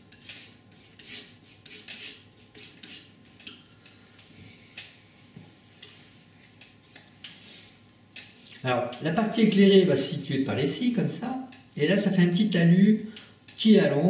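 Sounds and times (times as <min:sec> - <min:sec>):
palette knife scraping paint: 0:00.1 - 0:03.6.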